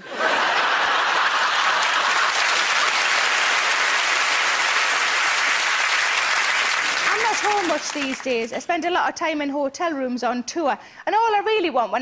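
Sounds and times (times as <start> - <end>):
audience applauding: 0.2 - 8.7.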